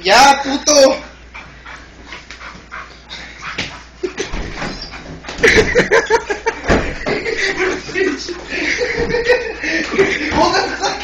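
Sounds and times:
dog whimpering and panting: 0:01.2 - 0:05.4
dog high whines: 0:04.6 - 0:05.1.

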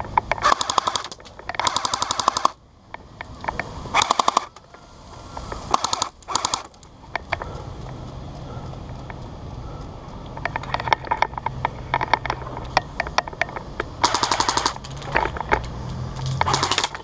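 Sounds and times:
airsoft guns firing: 0:00.4 - 0:02.6, 0:04.0 - 0:04.5, 0:05.7 - 0:06.7, 0:14.0 - 0:15.0, 0:16.4 - 0:17.0.

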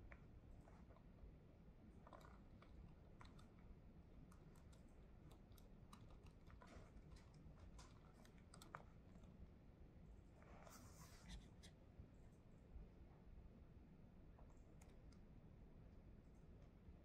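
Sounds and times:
low room hum: 0:00.0 - 0:17.0
laptop keyboard typing: 0:02.0 - 0:09.4.

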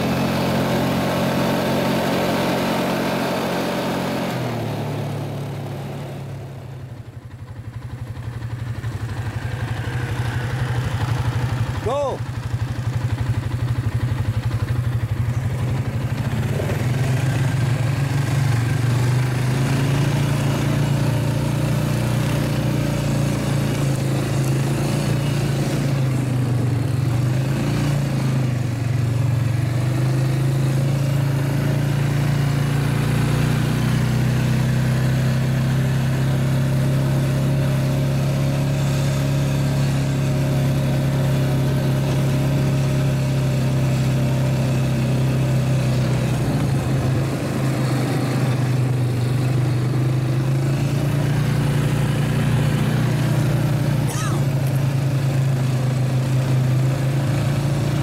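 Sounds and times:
quad engine running: 0:00.0 - 0:58.0.

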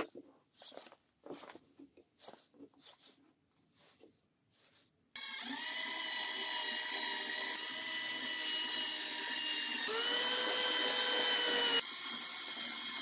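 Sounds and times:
power drill whining: 0:05.2 - 0:13.0.

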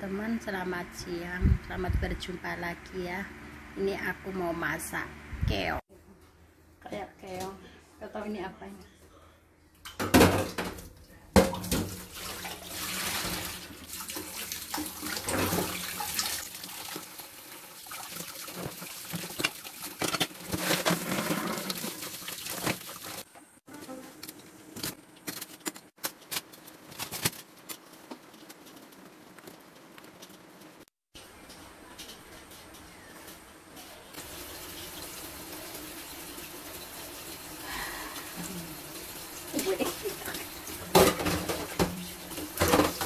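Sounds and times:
pot being scrubbed: 0:12.1 - 0:17.1, 0:17.8 - 0:23.3.

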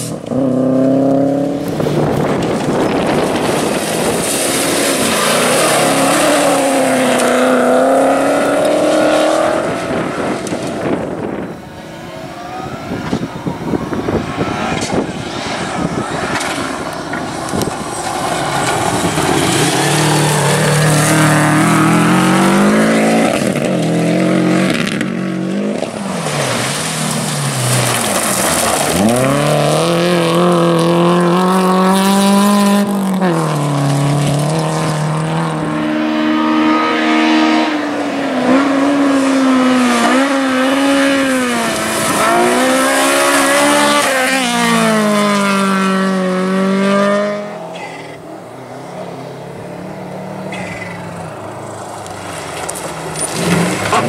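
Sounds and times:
rally car engine at full throttle: 0:00.0 - 0:54.0
gravel spraying from tyres: 0:01.6 - 0:10.9, 0:14.2 - 0:31.7, 0:38.8 - 0:45.1, 0:50.6 - 0:54.0.

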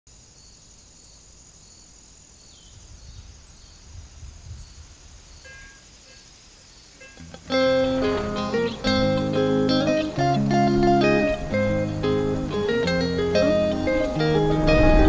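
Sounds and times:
insects chirring: 0:00.1 - 0:15.0
wind buffeting microphone: 0:02.7 - 0:05.7, 0:10.0 - 0:15.0.

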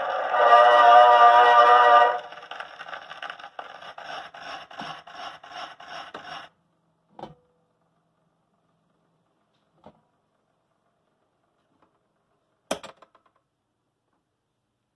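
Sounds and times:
phonograph stylus rhythmic scratch: 0:00.0 - 0:06.5.

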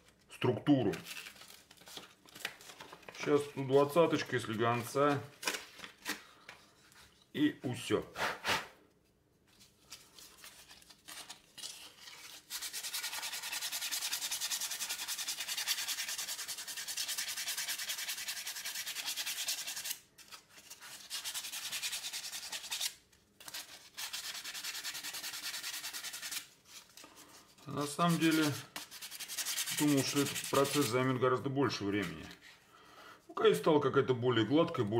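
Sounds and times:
sandpaper scratching wood: 0:12.5 - 0:20.0, 0:20.7 - 0:26.5, 0:27.8 - 0:31.1.

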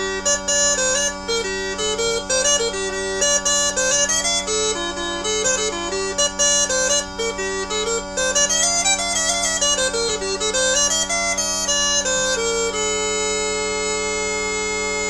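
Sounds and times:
bagpipe melody with drones: 0:00.0 - 0:15.0.

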